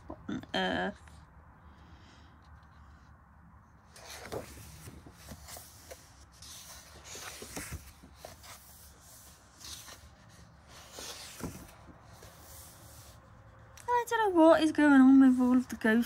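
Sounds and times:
paper pages rustling: 0:03.9 - 0:13.2.

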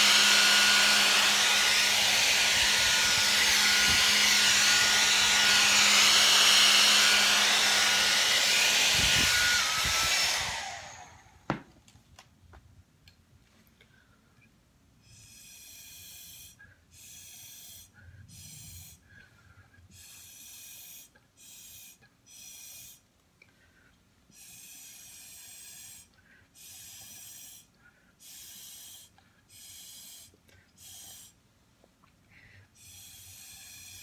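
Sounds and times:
breath blown through a straw: 0:15.0 - 0:19.3, 0:19.9 - 0:23.0, 0:24.3 - 0:31.4, 0:32.8 - 0:34.0.

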